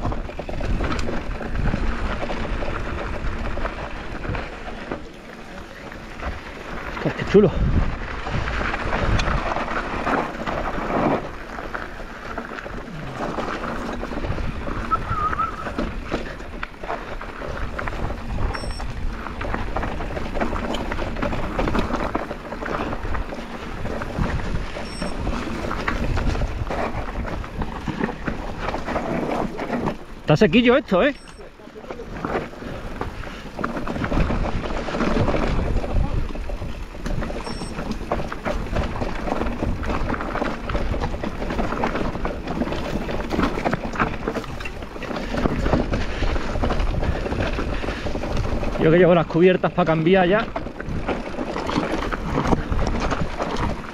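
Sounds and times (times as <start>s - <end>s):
bike rattling and knocking: 0.0s - 53.9s
tyres rolling over dirt and stones: 0.0s - 53.9s
wind buffeting microphone: 6.1s - 30.3s, 32.0s - 53.9s.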